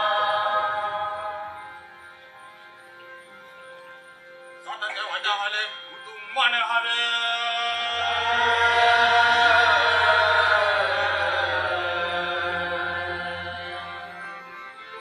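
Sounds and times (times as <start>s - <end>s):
man chanting: 4.6s - 13.5s.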